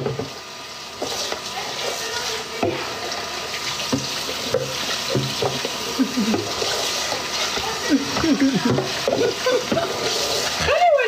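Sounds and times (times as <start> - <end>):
tap running into sink: 0.0 - 0.4, 3.5 - 10.7
plastic container knocking basin: 8.1 - 9.9.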